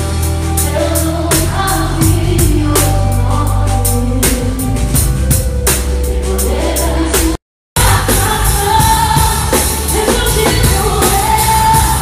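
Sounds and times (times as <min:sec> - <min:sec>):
live band playing: 0:00.0 - 0:12.0
woman singing: 0:00.6 - 0:04.7, 0:06.2 - 0:12.0
drum strikes: 0:07.2 - 0:12.0.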